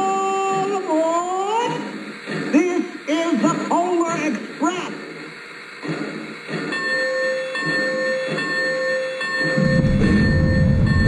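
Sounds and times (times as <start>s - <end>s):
steady whistle tone: 6.7s - 11.0s.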